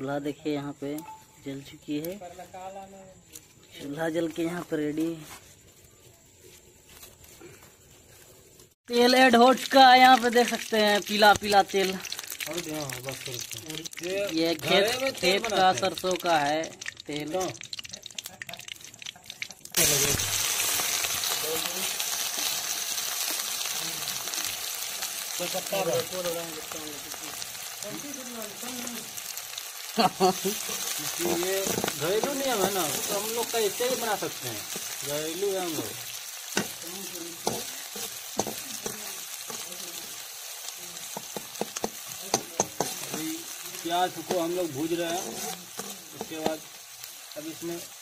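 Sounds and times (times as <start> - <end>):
onions sizzling in oil: 0.1 - 48.0
hot oil crackling: 0.2 - 5.2, 6.4 - 48.0
knife scraping a pan: 44.4 - 46.6.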